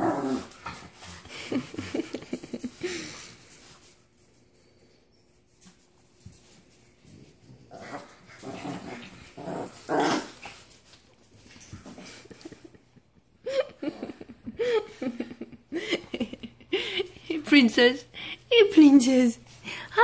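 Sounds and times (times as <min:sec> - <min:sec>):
puppies play growling: 0:00.0 - 0:03.8, 0:07.0 - 0:12.9.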